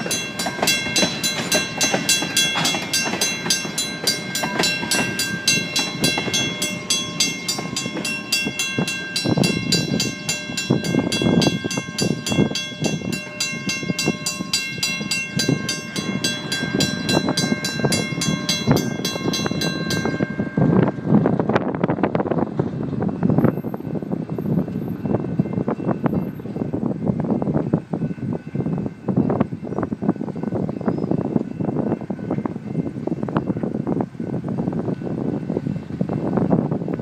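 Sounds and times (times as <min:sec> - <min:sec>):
crossing bell ringing: 0:00.0 - 0:22.2, 0:23.1 - 0:37.0
train cars rolling on rails: 0:00.0 - 0:37.0.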